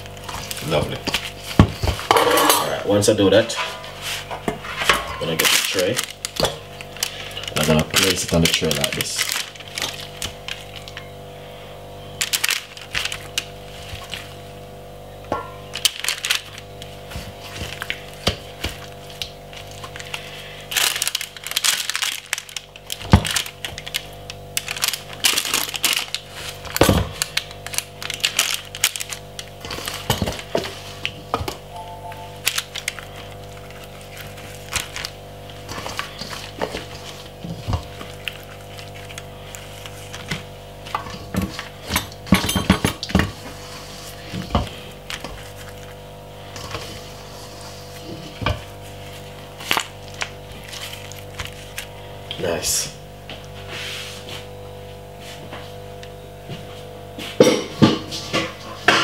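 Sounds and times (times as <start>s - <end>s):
parchment paper crackling: 0.0s - 2.0s, 3.9s - 11.1s, 12.2s - 14.7s, 15.6s - 31.4s, 32.0s - 42.2s, 43.0s - 52.2s
wet handling noises: 3.9s - 11.0s, 15.6s - 42.3s, 43.0s - 52.4s.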